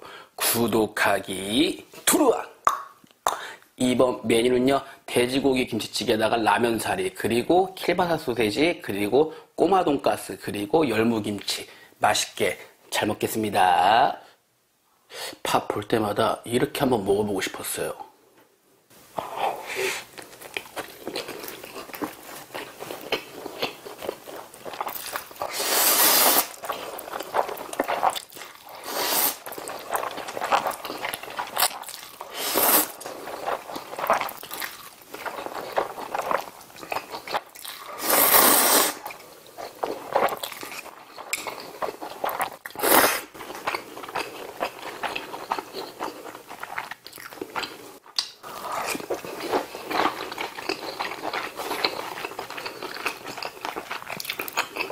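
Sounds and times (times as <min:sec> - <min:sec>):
wet chewing: 0:20.1 - 0:38.0, 0:39.0 - 0:54.9
loud slurps: 0:25.4 - 0:26.6, 0:28.8 - 0:29.5, 0:32.3 - 0:33.0, 0:37.9 - 0:39.1.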